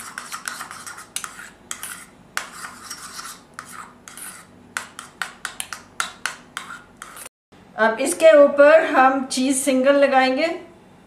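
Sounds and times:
spoon scraping ceramic bowl: 0.0 - 7.3.

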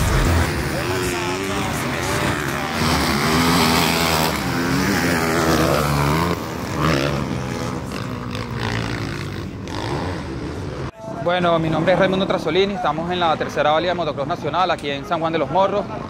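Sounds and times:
dirt bike engines revving: 0.0 - 10.9.

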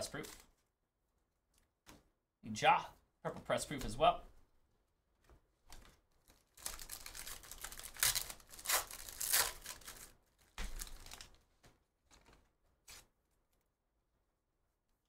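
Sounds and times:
cards being handled: 5.2 - 13.1
wrapper tearing and crinkling: 6.2 - 11.4.

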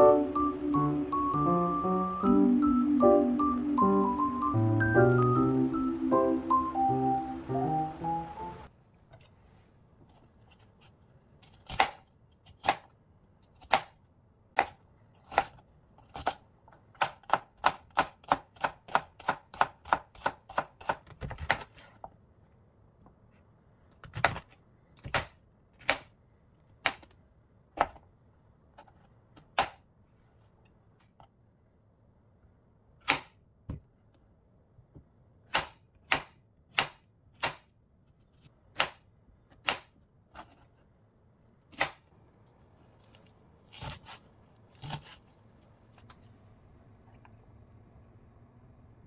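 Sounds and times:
knife chopping on cutting board: 43.7 - 44.2, 44.8 - 45.2.

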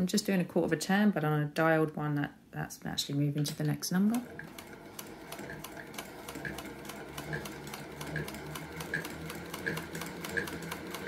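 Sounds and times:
sewing machine motor hum: 4.0 - 11.0
sewing machine needle clicking: 4.2 - 11.0.

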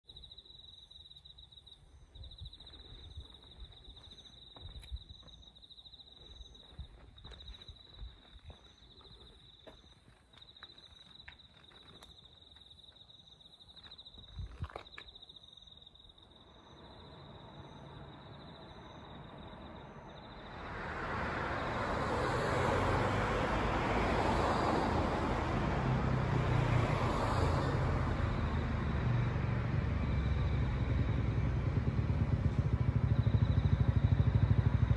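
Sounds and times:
vehicle noise: 16.7 - 34.9
low engine hum: 16.9 - 34.9.

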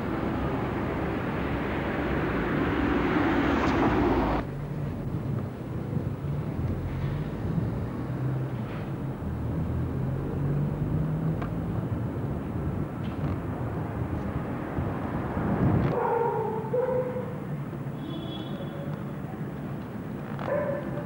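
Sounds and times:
engine hum: 0.0 - 15.9
traffic rumble: 0.0 - 21.0.

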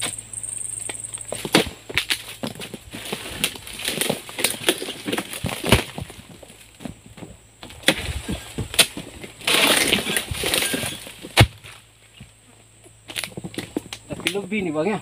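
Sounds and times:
rustling leaves: 0.0 - 15.0
sickle blade cracking fronds: 1.5 - 6.1, 7.6 - 11.8.

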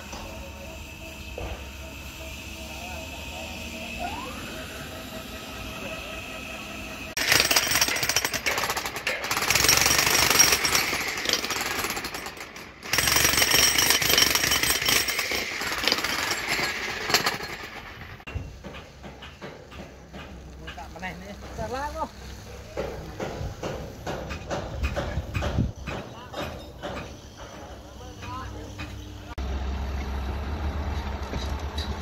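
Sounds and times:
jackhammer breaking concrete: 7.2 - 18.2.

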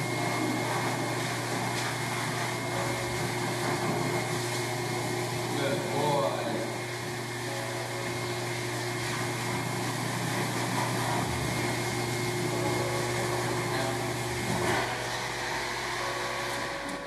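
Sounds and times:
blow dryer rushing air: 0.0 - 17.0.

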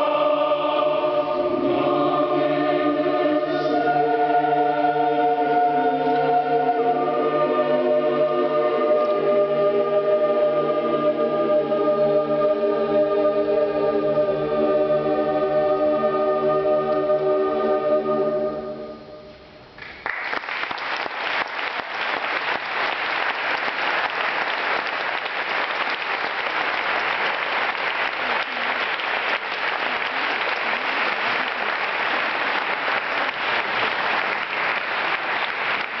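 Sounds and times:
choir chord: 0.0 - 19.5
audience applause: 19.8 - 36.0.

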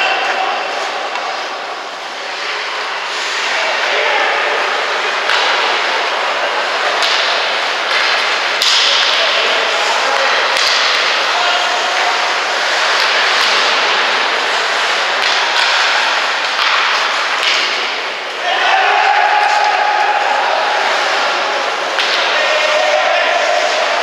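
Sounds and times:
sticks and puck clacking: 0.0 - 24.0
skate blades hissing on ice: 2.1 - 3.6.

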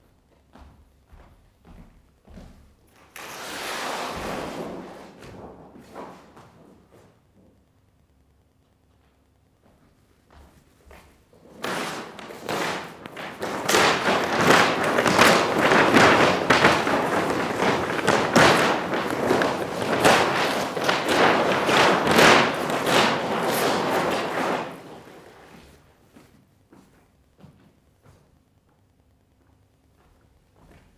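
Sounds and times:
paper ripping and crumpling: 11.6 - 25.4.

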